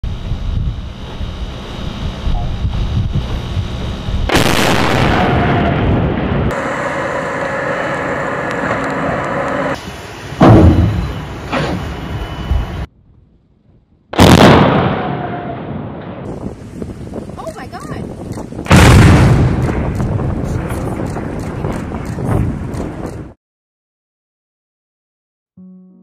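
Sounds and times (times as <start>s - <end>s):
explosive blasts: 4.2s - 7.1s, 10.4s - 12.8s, 14.1s - 16.6s, 18.6s - 23.4s.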